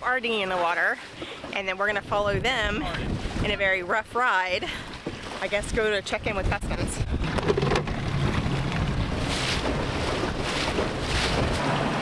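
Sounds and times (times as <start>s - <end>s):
wind on microphone: 1.9s - 4.0s, 5.5s - 12.0s
outboard motor humming: 6.9s - 12.0s.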